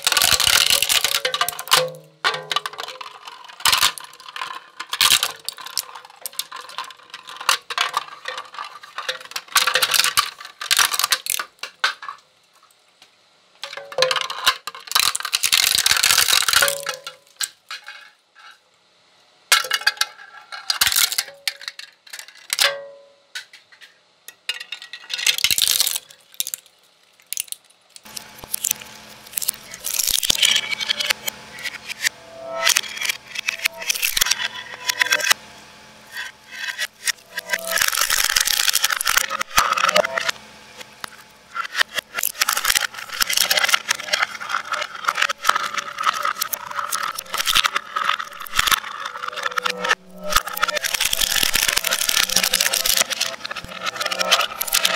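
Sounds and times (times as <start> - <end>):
shredder crunching plastic: 0.0 - 12.2, 13.6 - 17.6, 20.7 - 21.3, 25.2 - 26.6, 27.2 - 35.4, 36.1 - 54.9.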